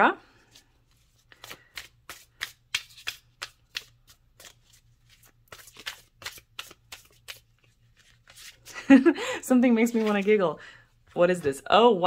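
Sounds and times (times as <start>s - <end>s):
cards being shuffled: 0.5s - 8.9s, 9.8s - 10.4s.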